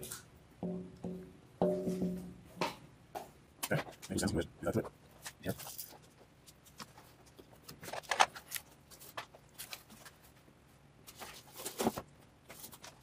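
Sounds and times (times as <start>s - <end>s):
handling rustles and taps: 4.8s - 13.0s.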